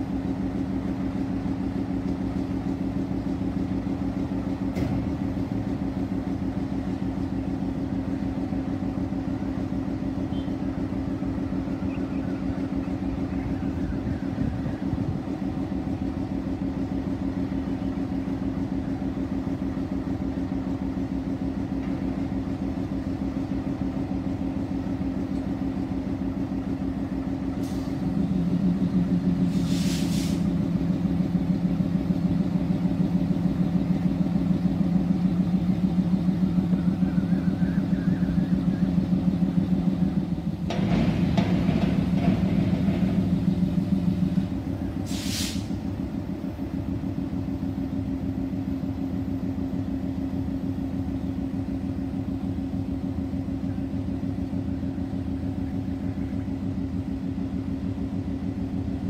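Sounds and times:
diesel locomotive engine idling: 0.0 - 59.0
short hiss: 29.5 - 30.5, 45.0 - 45.8.

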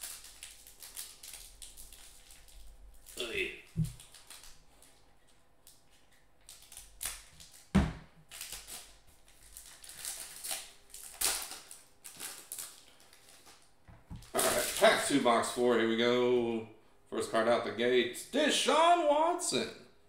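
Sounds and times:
foil wrapper crinkling: 0.0 - 15.2.

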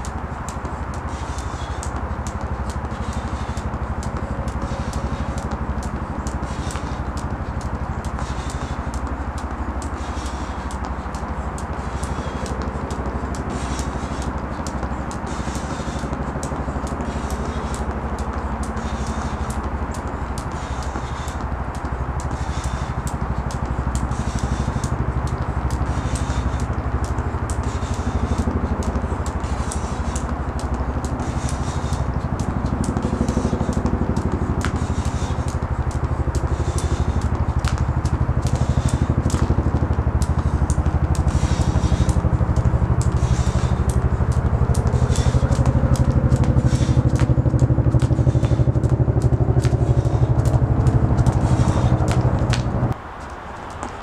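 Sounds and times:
low throbbing hum: 0.0 - 53.0
engine running steadily: 0.0 - 54.0
jump rope slapping pavement: 0.0 - 54.0.

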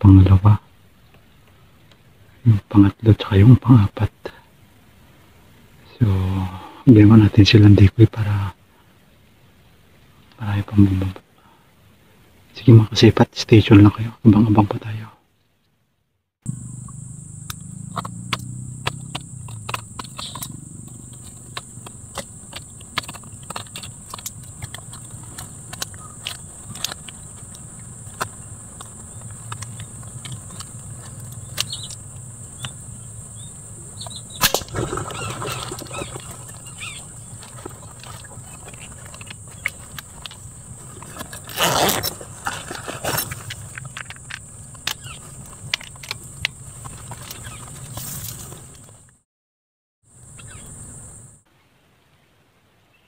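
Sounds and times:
high-pitched insect drone: 16.5 - 25.0, 25.6 - 45.3
small clicks and ticks: 16.5 - 32.8, 34.0 - 49.2
rustling: 17.4 - 32.9, 33.9 - 49.0.

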